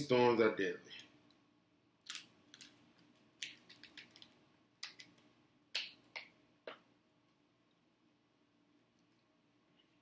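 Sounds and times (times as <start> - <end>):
crab shell cracking: 2.0 - 5.2.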